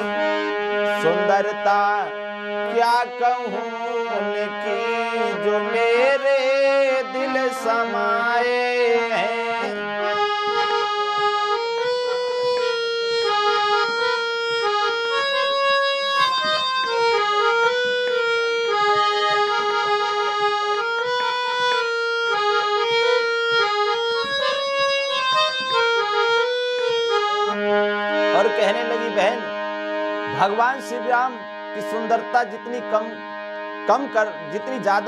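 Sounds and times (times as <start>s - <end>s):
person singing devotional song: 0.0s - 13.8s, 28.2s - 35.0s
harmonium melody: 0.0s - 35.0s.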